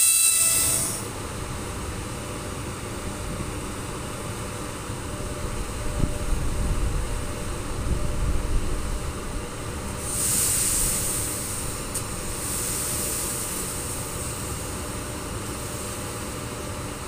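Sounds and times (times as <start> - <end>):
compressed air hissing: 10.0 - 14.7.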